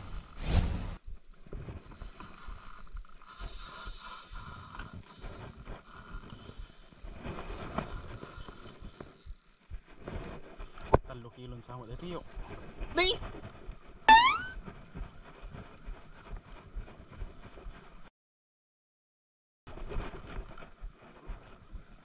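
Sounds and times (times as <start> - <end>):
fishing reel whirring and clicking: 0.0 - 0.4, 1.0 - 9.7, 11.7 - 12.3.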